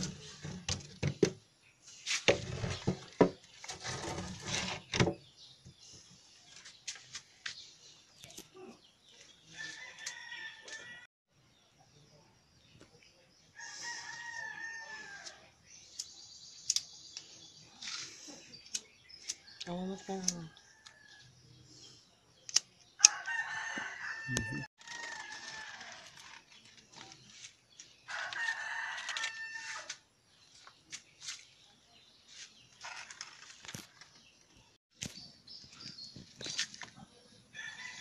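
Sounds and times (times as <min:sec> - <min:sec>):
rooster crowing: 0:09.6 - 0:11.1, 0:13.6 - 0:15.4, 0:23.0 - 0:26.1, 0:28.1 - 0:29.9, 0:37.6 - 0:38.0.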